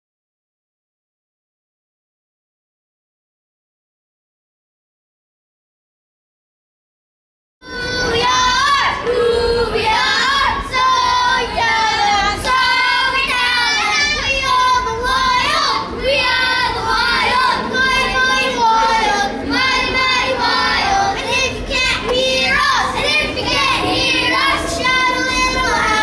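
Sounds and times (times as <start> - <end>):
child singing: 7.6 - 26.0.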